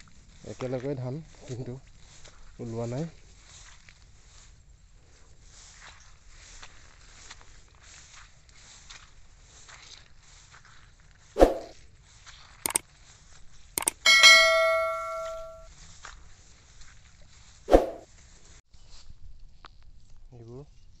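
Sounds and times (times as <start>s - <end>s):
swoosh: 11.4s - 11.7s, 17.7s - 18.0s
mouse clicks: 13.8s - 14.1s
notification bell ding: 13.8s - 15.6s.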